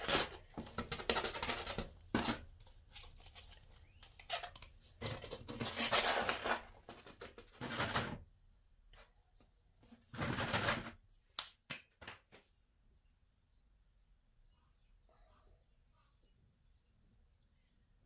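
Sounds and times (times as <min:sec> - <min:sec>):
plastic pots handled: 0:00.0 - 0:08.3.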